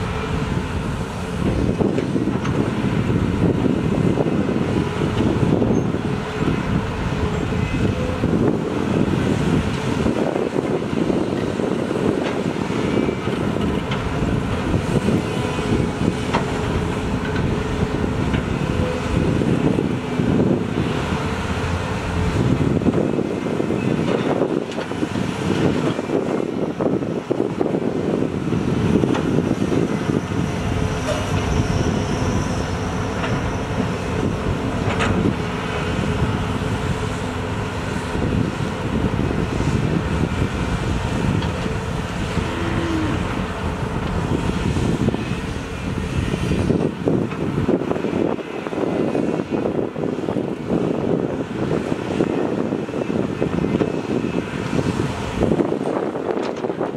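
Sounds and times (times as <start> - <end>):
excavator engines and hydraulics: 0.0 - 56.9.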